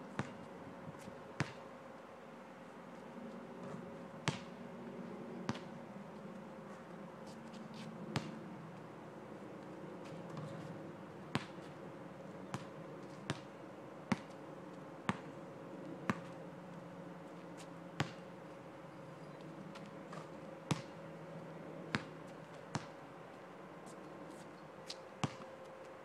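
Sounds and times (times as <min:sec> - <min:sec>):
faint steady hum: 0:00.0 - 0:26.0
basketball bouncing on asphalt: 0:00.1 - 0:00.5, 0:01.4 - 0:01.6, 0:03.6 - 0:04.6, 0:05.5 - 0:05.7, 0:08.1 - 0:08.4, 0:10.3 - 0:10.7, 0:11.3 - 0:11.6, 0:12.5 - 0:13.5, 0:14.1 - 0:14.4, 0:15.1 - 0:15.3, 0:16.0 - 0:16.4, 0:18.0 - 0:18.3, 0:19.7 - 0:21.0, 0:21.9 - 0:23.0, 0:25.2 - 0:25.5.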